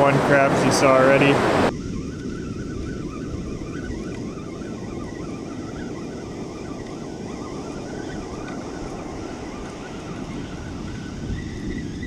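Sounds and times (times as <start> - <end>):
breaking surf: 0.0 - 1.8
wind noise on microphone: 0.0 - 12.0.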